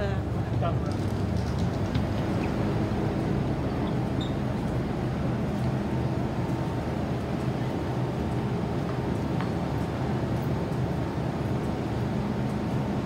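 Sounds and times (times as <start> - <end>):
train hum and rumble: 0.0 - 13.0.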